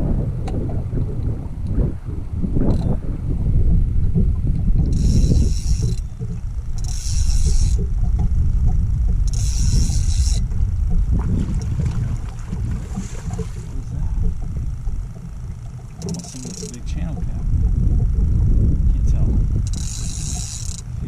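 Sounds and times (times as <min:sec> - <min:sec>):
wind on microphone: 0:00.0 - 0:21.0
fishing reel whirring: 0:02.6 - 0:03.1, 0:04.8 - 0:11.2, 0:14.2 - 0:18.3, 0:19.1 - 0:21.0.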